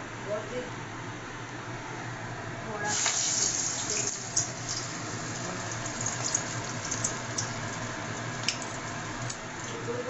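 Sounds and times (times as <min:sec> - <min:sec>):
oil sizzling with pops: 0:02.9 - 0:05.0, 0:05.7 - 0:09.9.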